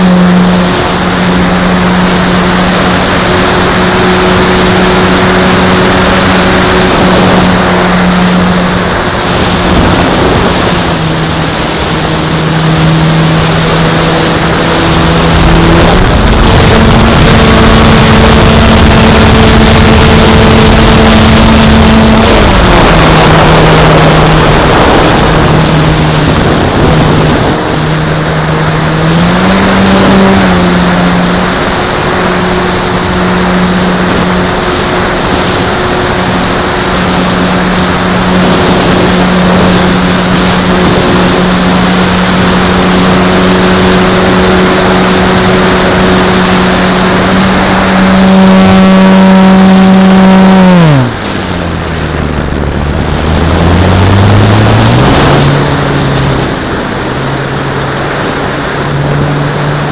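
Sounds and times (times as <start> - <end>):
model plane motor and propeller: 0.0 - 59.9
wind rushing over microphone: 0.0 - 59.9.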